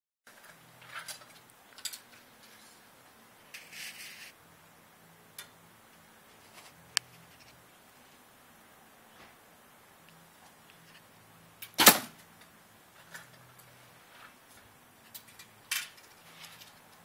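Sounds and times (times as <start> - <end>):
bow and arrow clicks and rustles: 3.5 - 4.4, 11.7 - 17.0
sharp loud click: 11.6 - 12.2.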